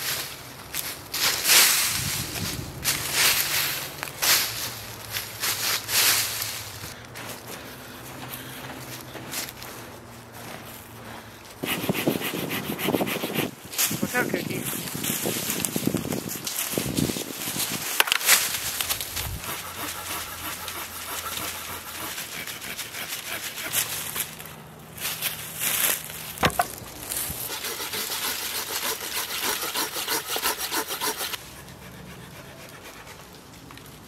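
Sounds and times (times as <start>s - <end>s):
branch dragged through dry leaves: 0.0s - 7.0s, 14.6s - 22.4s, 23.7s - 27.6s
hand saw cutting wood: 11.6s - 14.2s, 18.0s - 24.5s, 26.4s - 33.1s
wood cracking: 17.9s - 19.2s, 25.8s - 27.5s.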